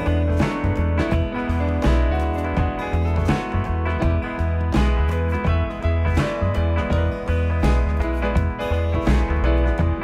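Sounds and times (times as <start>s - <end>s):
background music with bass line: 0.0s - 10.0s.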